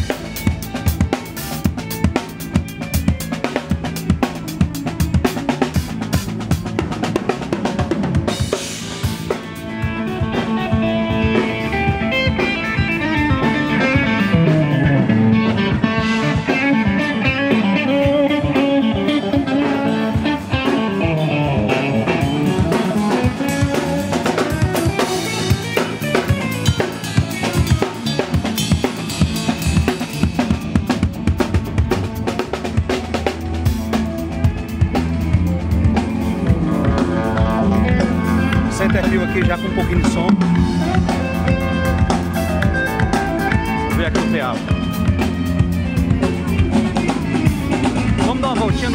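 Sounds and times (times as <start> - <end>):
drum kit steady beat: 0.0 - 48.9
low notes sliding in pitch: 34.2 - 48.3.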